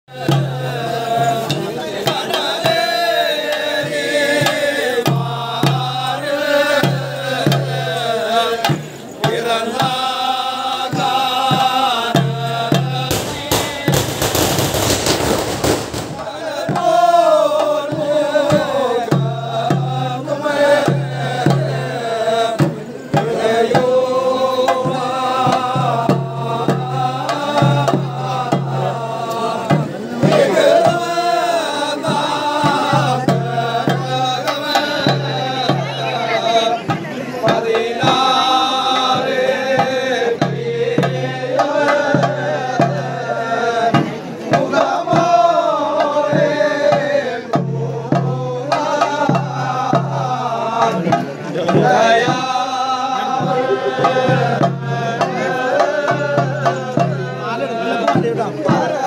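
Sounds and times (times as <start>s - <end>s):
dense loud percussion: 0.1s - 35.9s, 46.3s - 57.3s
drums in a steady pulse: 0.1s - 59.0s
men chanting together: 0.1s - 59.0s.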